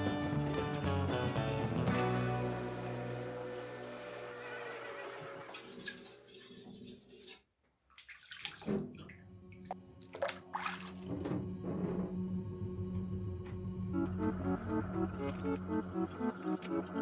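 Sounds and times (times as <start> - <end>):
water sloshing and splashing: 5.5 - 12.2.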